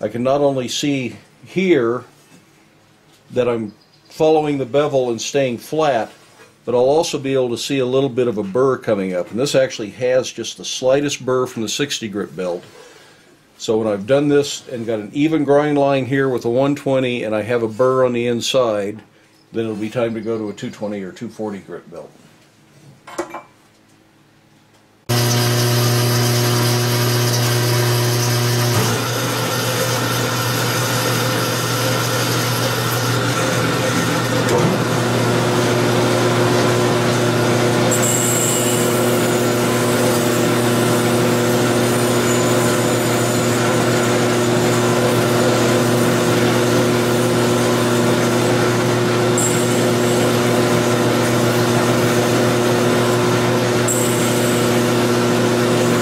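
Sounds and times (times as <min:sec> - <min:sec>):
belt grinder running: 0:25.1 - 0:56.0
steel hissing on grinder belt: 0:36.6 - 0:56.0.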